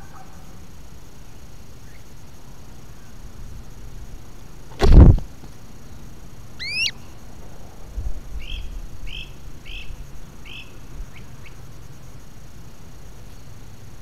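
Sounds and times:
songbird whistling and chirping: 6.6 - 7.1.

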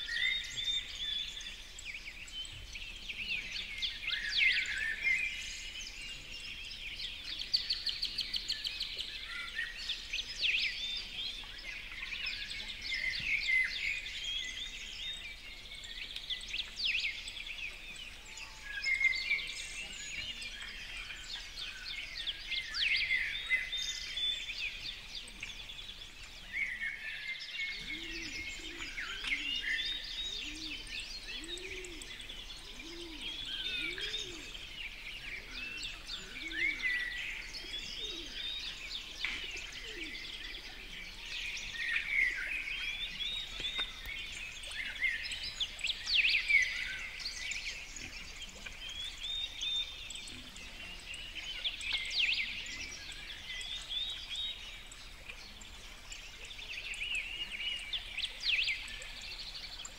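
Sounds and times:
songbirds chirping and trilling: 0.0 - 59.9.

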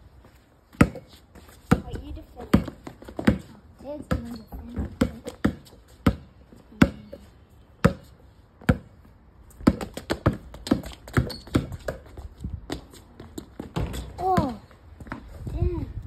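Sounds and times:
basketball bouncing on brick: 0.7 - 1.1, 1.7 - 7.2, 7.8 - 8.9, 9.6 - 15.2.

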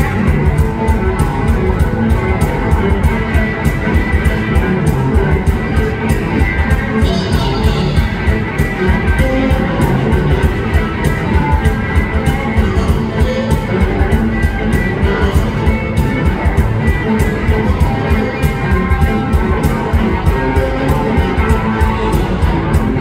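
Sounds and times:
bass: 0.0 - 23.0
electric guitars playing blues: 0.0 - 23.0
steady beat: 0.0 - 23.0.

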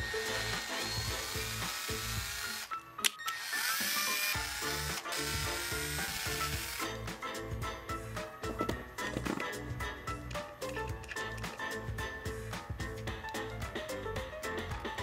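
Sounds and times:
cordless drill boring through plastic: 0.0 - 6.9
drill click: 0.0 - 6.9.

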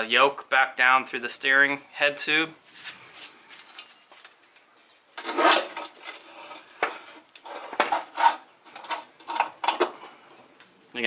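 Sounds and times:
metal scraping and clinking: 3.2 - 10.4.

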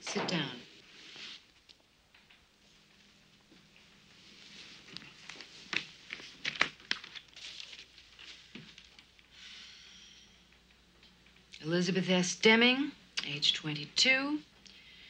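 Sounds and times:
paper rustling: 4.3 - 9.2
paper crackles: 4.4 - 9.2.

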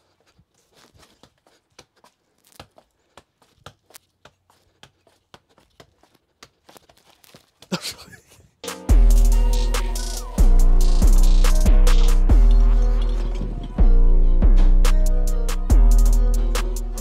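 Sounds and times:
music with heavy beat: 8.6 - 17.0.

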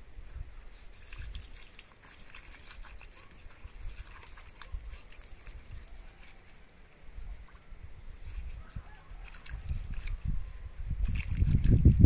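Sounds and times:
hands rubbing roots in water: 0.2 - 12.0.

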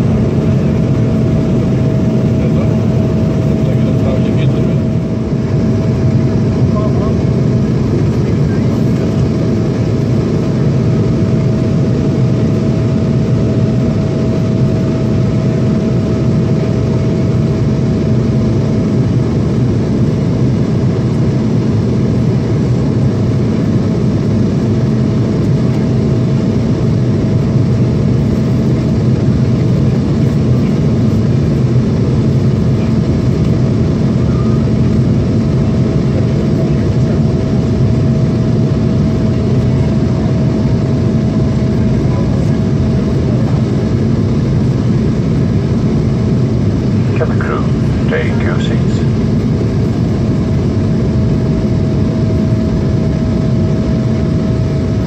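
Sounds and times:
faint steady whine: 0.0 - 55.0
jet cabin rumble: 0.0 - 55.0.

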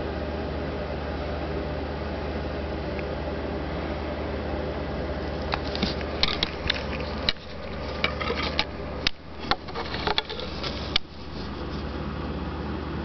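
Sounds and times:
steady low hum: 0.0 - 13.0
handling clicks and knocks: 5.5 - 11.6.

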